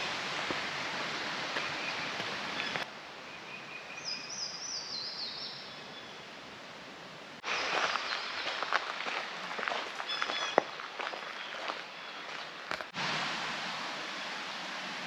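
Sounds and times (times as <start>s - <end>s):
footsteps on trail: 0.4s - 2.9s, 7.4s - 13.0s
songbird singing: 1.6s - 6.3s, 7.4s - 8.8s, 9.6s - 12.5s.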